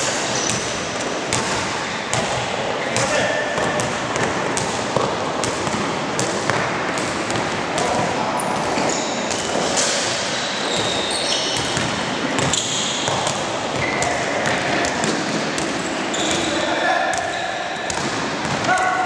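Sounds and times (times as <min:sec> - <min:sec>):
shoes squeaking on court: 0:00.2 - 0:02.2, 0:05.6 - 0:18.6
basketball bouncing: 0:00.3 - 0:19.0.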